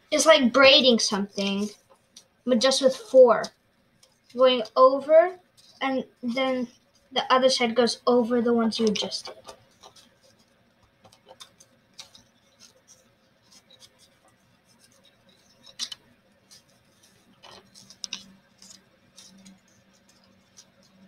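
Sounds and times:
paper crinkling and rustling: 0:08.8 - 0:21.0.

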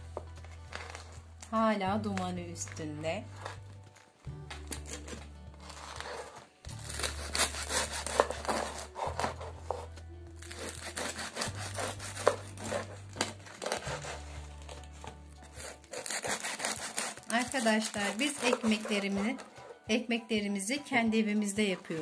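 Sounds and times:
knife sawing through crusty bread: 0:04.7 - 0:19.8.

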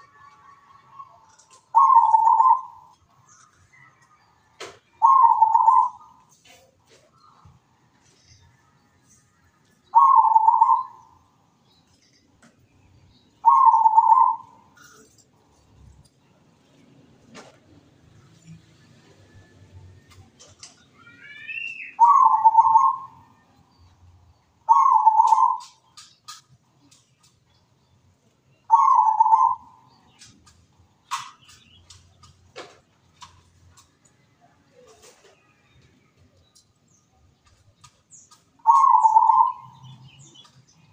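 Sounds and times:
dove cooing trill: 0:01.2 - 0:03.0, 0:05.0 - 0:07.0, 0:09.9 - 0:11.2, 0:13.4 - 0:15.1, 0:21.6 - 0:23.2, 0:24.7 - 0:26.4, 0:28.7 - 0:29.9, 0:38.6 - 0:40.3.

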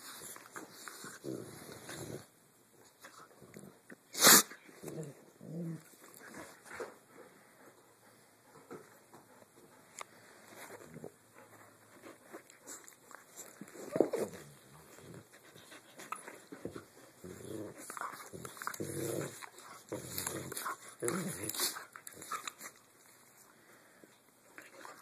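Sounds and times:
dogs growling: 0:04.8 - 0:06.6, 0:13.7 - 0:15.5, 0:16.6 - 0:22.6.

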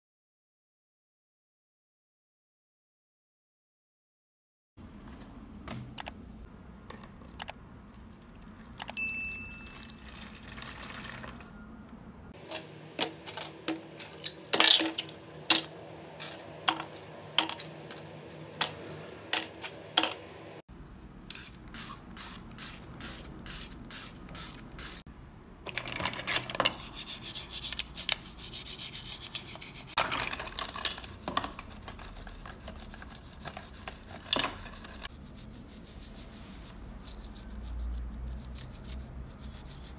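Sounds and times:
plastic parts clicking and clattering: 0:12.4 - 0:18.8, 0:25.6 - 0:26.8, 0:30.0 - 0:31.6
toothbrush scrubbing plastic in water: 0:26.6 - 0:39.9.

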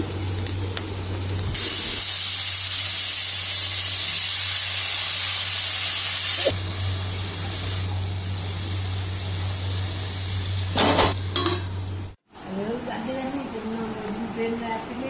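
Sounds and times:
vegetables sizzling in oil: 0:00.0 - 0:11.3.

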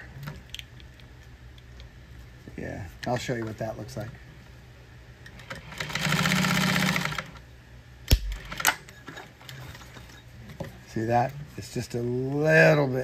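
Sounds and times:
sewing machine stitching: 0:05.4 - 0:07.4.

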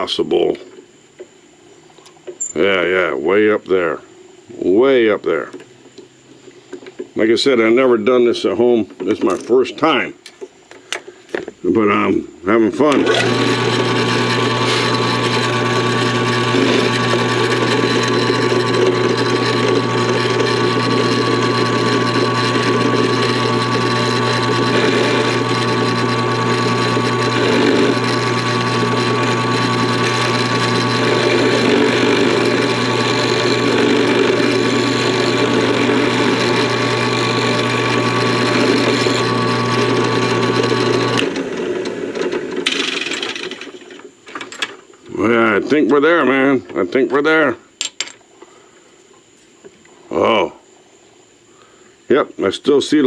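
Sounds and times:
drill press motor hum: 0:12.5 - 0:46.5
end mill cutting metal: 0:12.7 - 0:43.8.

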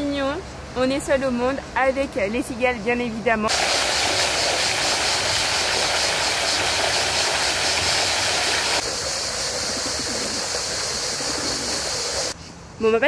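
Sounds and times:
cicadas buzzing: 0:03.5 - 0:12.4
fountain splashing into pond: 0:03.5 - 0:12.4.

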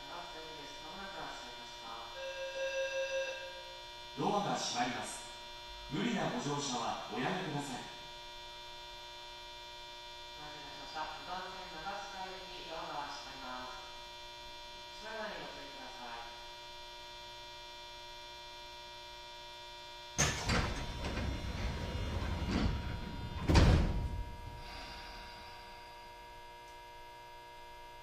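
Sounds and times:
electrical hum with whining tones: 0:00.0 - 0:28.0
train doors closing thud: 0:20.2 - 0:24.4
rumbling and hiss: 0:20.2 - 0:25.8.

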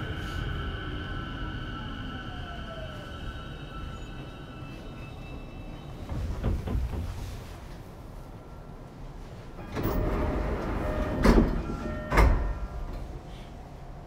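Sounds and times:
rush of air from train doors: 0:00.0 - 0:01.5, 0:06.0 - 0:08.0
faint chime-like tones: 0:10.8 - 0:13.1.

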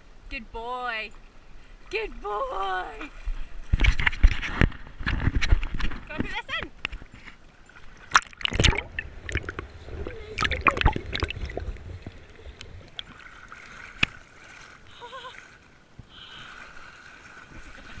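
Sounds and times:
water splashing and sloshing: 0:01.1 - 0:18.0
underwater gurgling: 0:07.8 - 0:15.7.

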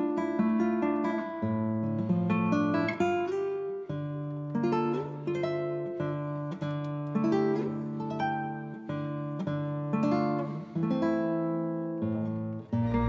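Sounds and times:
acoustic guitar music: 0:00.0 - 0:13.0.

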